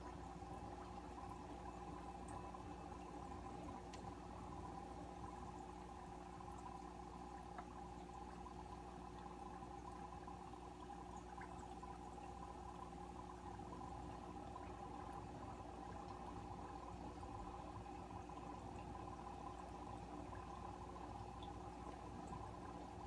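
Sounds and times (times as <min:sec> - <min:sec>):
low aquarium equipment hum: 0:00.0 - 0:23.0
water trickling: 0:00.0 - 0:23.0
tiny ticks: 0:03.9 - 0:04.1.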